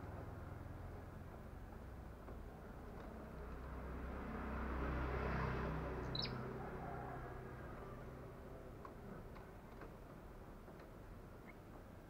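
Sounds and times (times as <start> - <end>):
vehicle engine passing: 2.8 - 8.6
bird chirp: 6.0 - 6.4.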